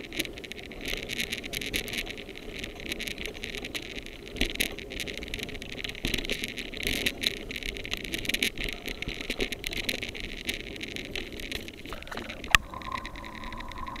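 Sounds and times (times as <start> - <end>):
mountain bike rattling on dirt trail: 0.0 - 14.0
thin whine: 11.9 - 14.0.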